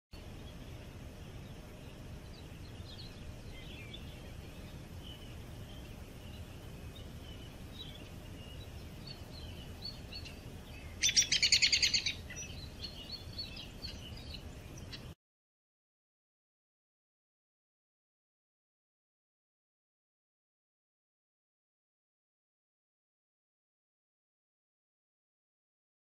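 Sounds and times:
songbirds chirping: 0.2 - 15.2
loud fast bird trill: 9.1 - 15.1.

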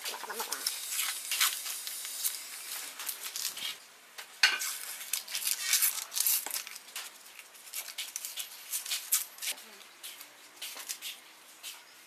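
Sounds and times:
sandpaper crackling and rustling: 0.0 - 3.8, 4.6 - 11.8.

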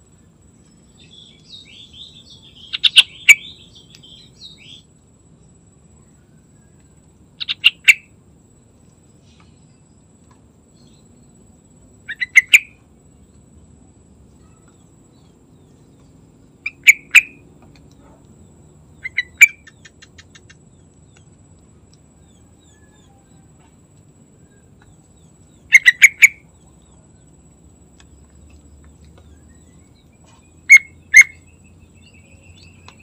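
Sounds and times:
bird calling in quick notes: 12.1 - 12.8, 19.0 - 20.6.

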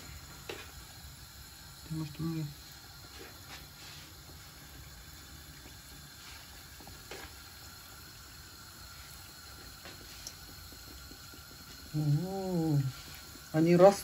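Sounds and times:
oil sizzling: 0.0 - 14.0
oil crackles: 2.7 - 14.0.

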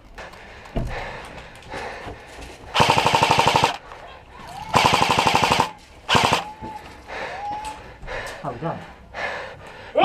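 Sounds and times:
airsoft rifle full-auto bursts: 2.8 - 3.8, 4.7 - 6.5.

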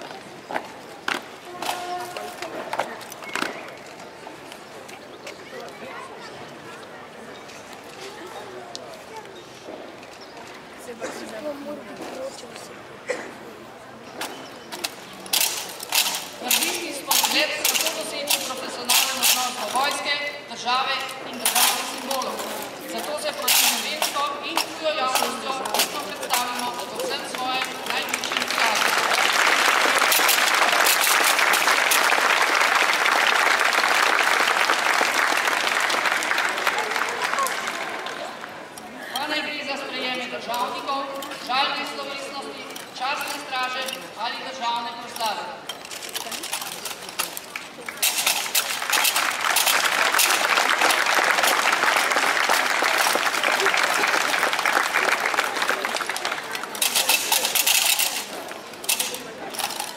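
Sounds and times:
crowd applauding: 27.0 - 38.7, 47.5 - 57.5.

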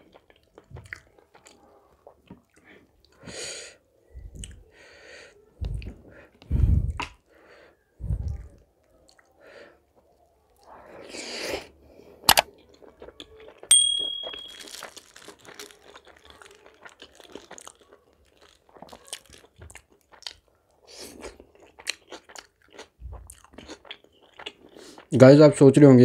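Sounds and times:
person chewing crunchy food: 0.0 - 3.2, 8.1 - 25.1
sharp ringing clink: 13.7 - 14.7.

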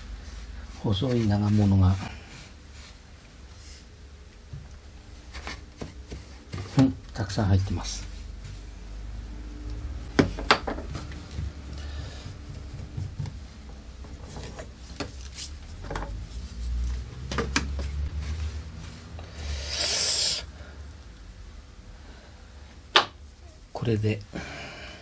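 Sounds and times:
brush sweeping sawdust on metal: 0.0 - 3.9.

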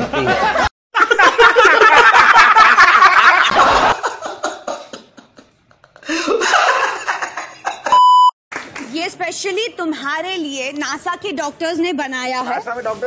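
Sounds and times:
men laughing: 0.0 - 8.0.

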